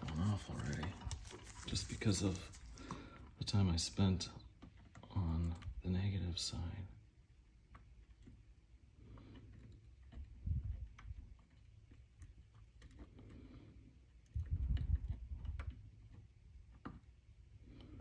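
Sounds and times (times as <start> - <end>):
low rumbling handling noise: 7.9 - 18.0.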